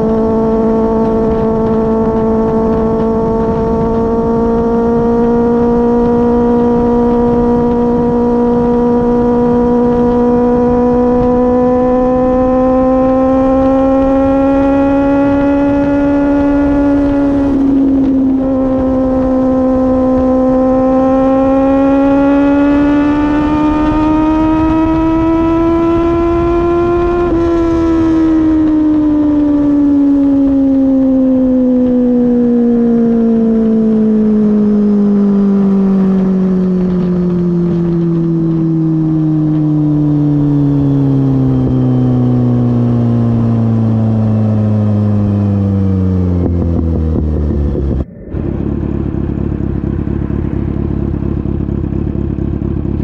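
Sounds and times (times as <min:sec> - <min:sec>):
wind rush: 0:00.0 - 0:20.8, 0:45.3 - 0:52.9
motorcycle engine under throttle: 0:00.0 - 0:53.0.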